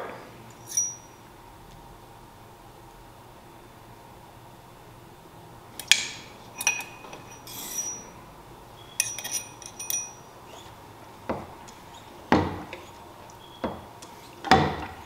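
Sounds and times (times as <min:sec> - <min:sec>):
metal tool clinking and rattling: 0:00.6 - 0:01.2, 0:06.5 - 0:08.2, 0:09.0 - 0:10.3.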